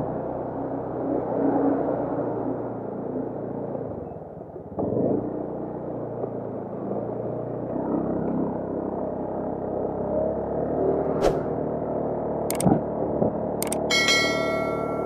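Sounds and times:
small motorcycle engine running: 0:04.5 - 0:15.0.

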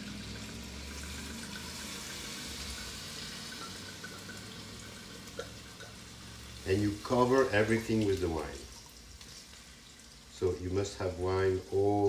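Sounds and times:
wine pouring and splashing: 0:00.0 - 0:10.6.

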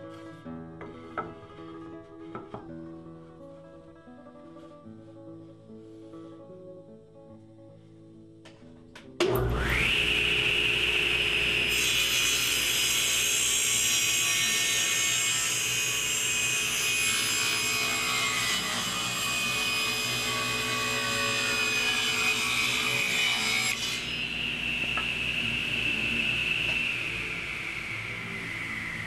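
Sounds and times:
table saw whining: 0:09.2 - 0:29.0
saw blade cutting wood: 0:09.6 - 0:29.0.

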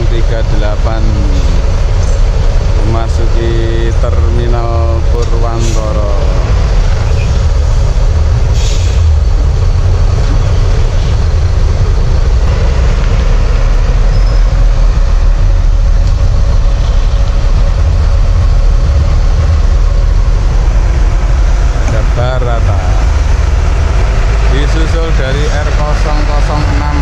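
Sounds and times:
diesel bus engine rumbling: 0:00.0 - 0:27.0
brief air hiss: 0:08.5 - 0:09.1.

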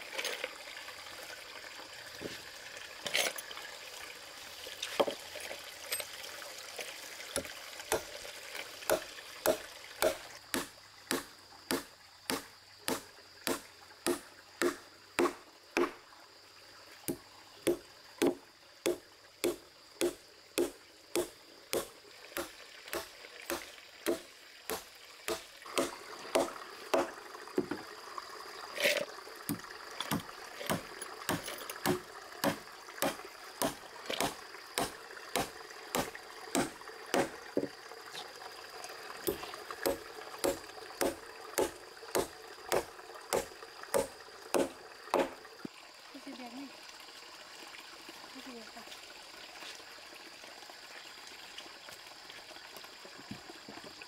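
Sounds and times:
hammer driving nails into wood: 0:08.9 - 0:16.0, 0:30.1 - 0:37.4, 0:39.3 - 0:45.3.

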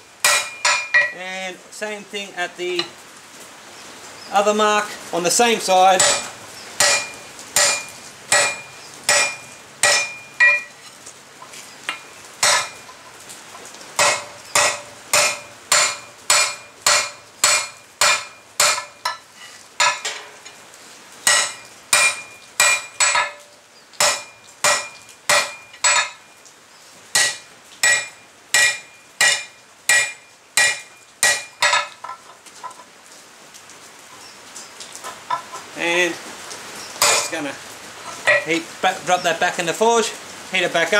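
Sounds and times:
hammer striking hot steel on anvil: 0:00.2 - 0:01.2, 0:06.0 - 0:10.7, 0:11.9 - 0:13.0, 0:14.0 - 0:19.2, 0:19.8 - 0:20.4, 0:21.3 - 0:26.2, 0:27.2 - 0:32.0, 0:37.0 - 0:37.4, 0:38.3 - 0:38.5.

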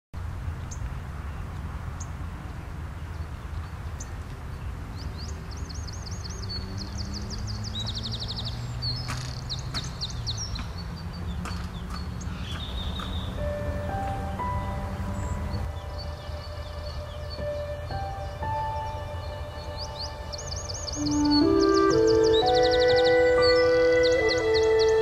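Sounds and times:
small songbird chirping and trilling: 0:03.0 - 0:25.0
low outdoor rumble: 0:10.4 - 0:25.0.

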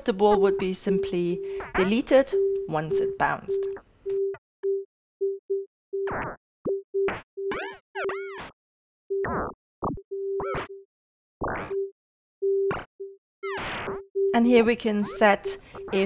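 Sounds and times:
short synthesizer beeps: 0:00.3 - 0:04.4, 0:15.1 - 0:16.0.

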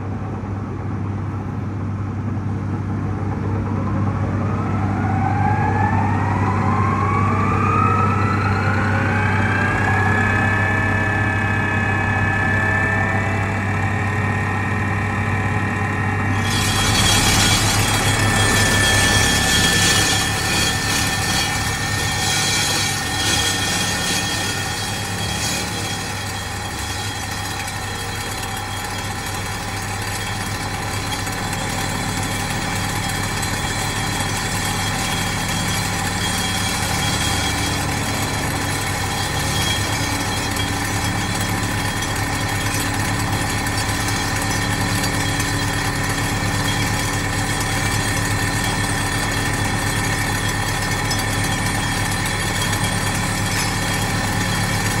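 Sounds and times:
engine hum: 0:00.0 - 0:55.0
hydraulic whine: 0:04.2 - 0:55.0.

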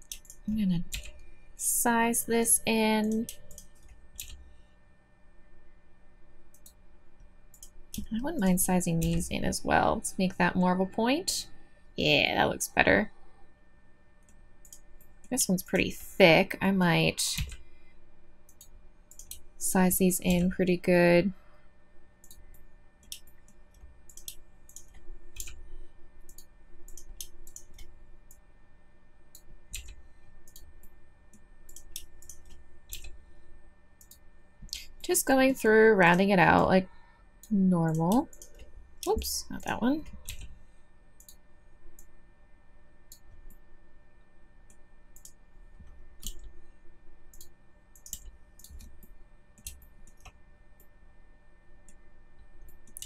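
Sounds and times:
computer mouse clicks: 0:00.0 - 0:01.3, 0:03.0 - 0:04.4, 0:06.5 - 0:06.8, 0:14.2 - 0:15.1, 0:18.5 - 0:19.4, 0:20.2 - 0:20.6, 0:22.2 - 0:28.4, 0:29.3 - 0:33.2, 0:34.0 - 0:35.1, 0:37.4 - 0:40.6, 0:41.2 - 0:42.1, 0:43.1 - 0:43.6, 0:44.7 - 0:46.6, 0:47.3 - 0:50.9, 0:51.8 - 0:53.0
faint steady hum: 0:00.0 - 0:53.0.

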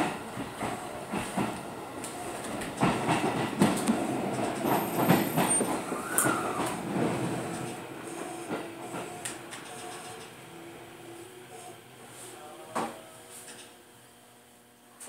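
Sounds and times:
train wheels clattering on rails: 0:00.0 - 0:10.3
train wheel squeal: 0:04.6 - 0:06.8.

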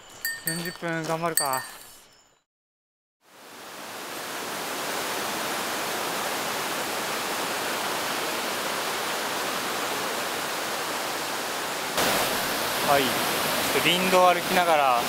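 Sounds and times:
river water rushing: 0:03.4 - 0:15.0.

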